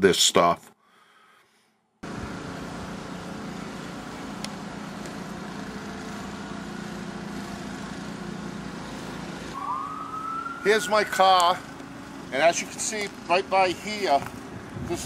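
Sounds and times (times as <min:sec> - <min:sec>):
outdoor noise: 0:00.1 - 0:15.0
motor humming: 0:02.0 - 0:09.6
rising tone: 0:09.5 - 0:11.7.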